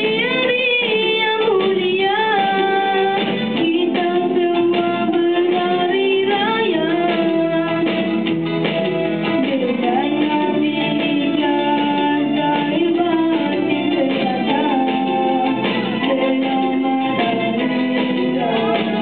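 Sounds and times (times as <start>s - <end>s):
instrumental accompaniment: 0.0s - 19.0s
boy singing slow melody: 9.6s - 19.0s.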